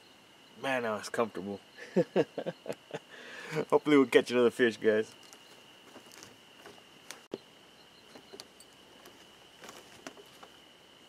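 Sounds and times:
night insects trilling: 0.0s - 11.0s
soft taps and rustles: 5.2s - 7.4s, 8.1s - 10.6s.

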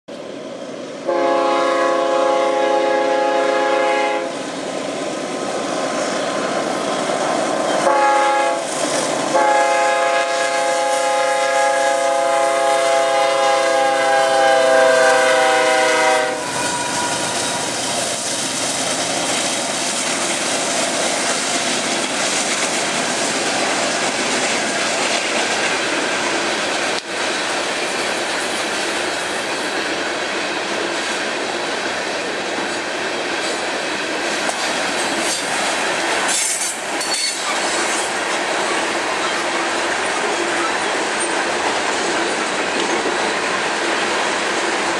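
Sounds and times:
locomotive horn blasts: 1.1s - 4.3s, 7.8s - 8.7s, 9.3s - 17.7s
freight cars rolling clickety-clack: 4.3s - 9.8s, 16.4s - 44.9s.

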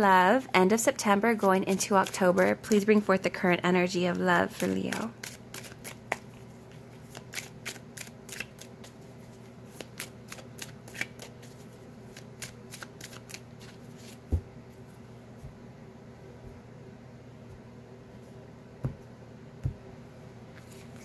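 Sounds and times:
cards shuffling: 4.1s - 14.3s.

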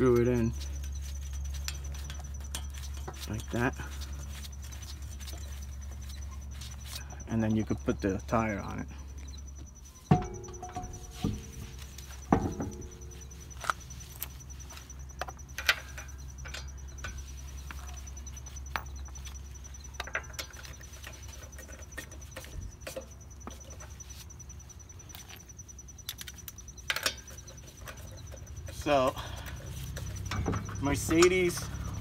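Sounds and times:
low hum: 0.0s - 32.0s
metallic clicks and knocks: 9.2s - 24.1s, 25.0s - 32.0s.

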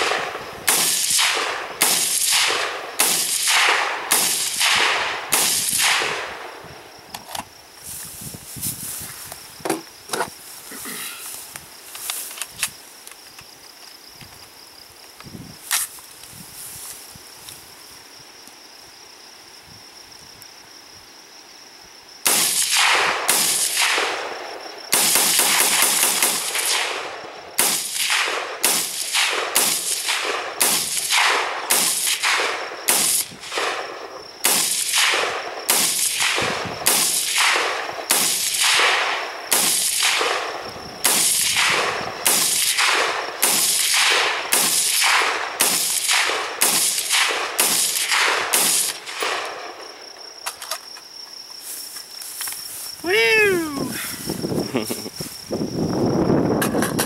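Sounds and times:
rifle gunshots: 0.0s - 6.5s, 22.3s - 49.8s.

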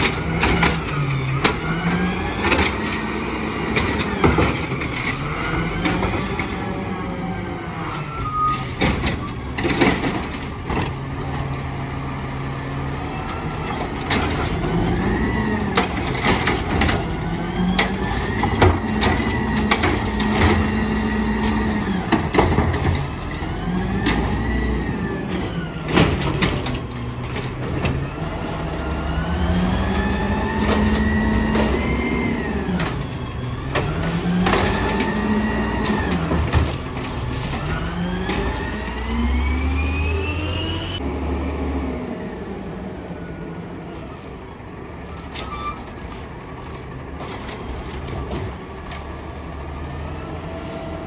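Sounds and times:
truck engine revving: 9.7s - 42.8s
carts and arm clanking: 13.1s - 39.2s.

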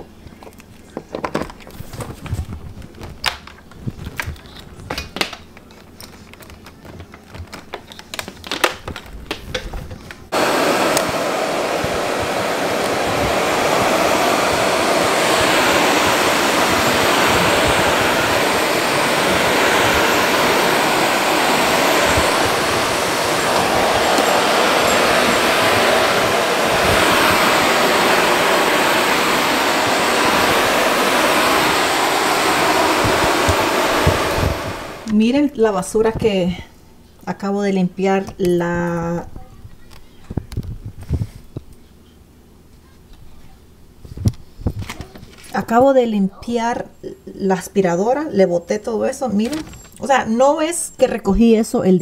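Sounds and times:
vacuum cleaner running: 10.3s - 35.4s.

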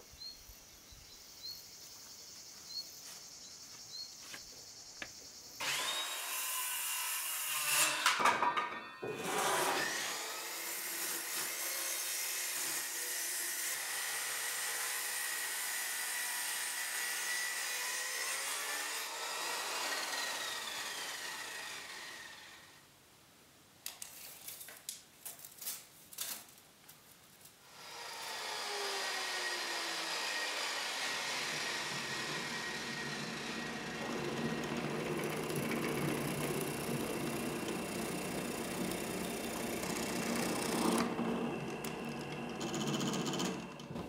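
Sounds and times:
power tool running on wood: 5.6s - 8.0s, 9.2s - 22.6s, 27.8s - 44.0s.

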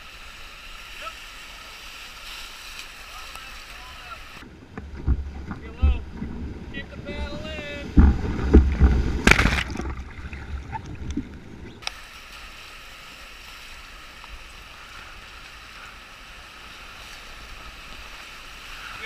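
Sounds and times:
wind rumble on microphone: 4.4s - 11.8s.

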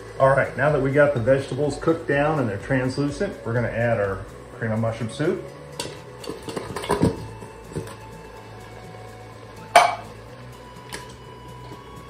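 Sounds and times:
low steady hum: 0.0s - 12.0s
can clanking against metal pot: 5.8s - 8.0s, 9.7s - 10.2s.

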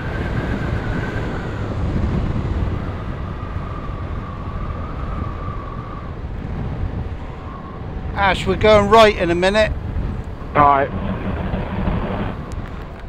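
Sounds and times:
wind noise: 0.0s - 13.0s
motorcycle engine rumble: 10.3s - 13.0s.

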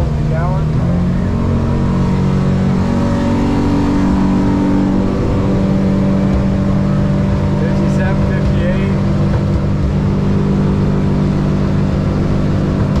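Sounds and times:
outboard engine running hard: 0.0s - 13.0s.

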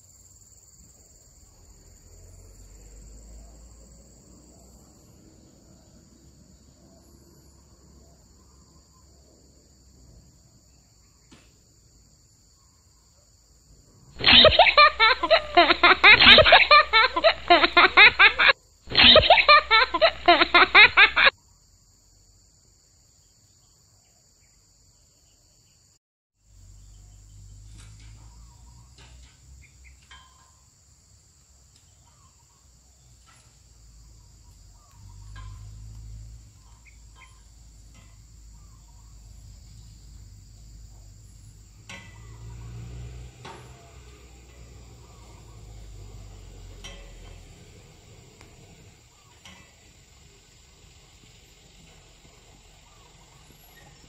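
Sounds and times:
pulsing laughter sound effect: 14.2s - 21.3s.

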